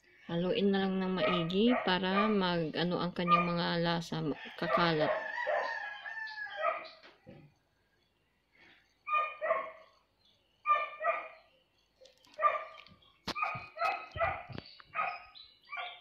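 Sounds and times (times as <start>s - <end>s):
dog barking: 1.2s - 2.4s, 3.2s - 3.6s, 4.7s - 5.8s, 6.6s - 6.9s, 9.1s - 9.9s, 10.6s - 11.4s, 12.4s - 16.0s.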